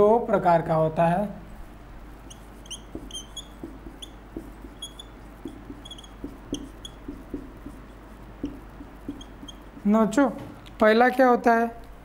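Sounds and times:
marker squeaking on whiteboard: 2.0 - 10.2.

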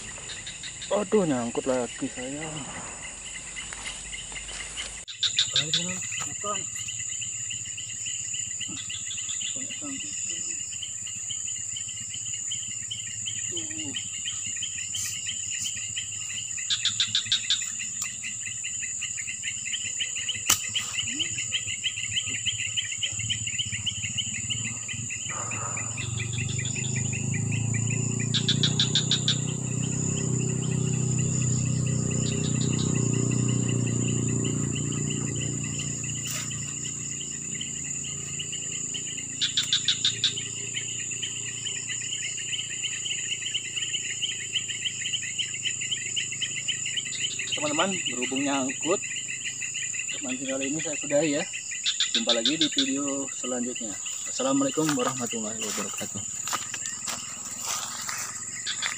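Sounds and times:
insects chirring: 0.0 - 58.9
rhythmic chirp bursts: 0.0 - 58.9
low rumbling noise: 22.1 - 39.3.

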